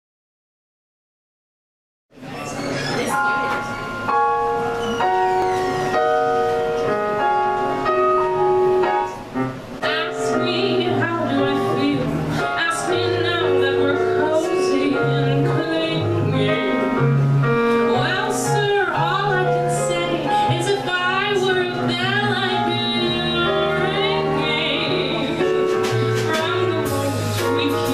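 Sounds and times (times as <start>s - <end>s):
piano chords: 2.2s - 27.9s
woman singing into a microphone: 9.8s - 17.1s, 17.9s - 27.9s.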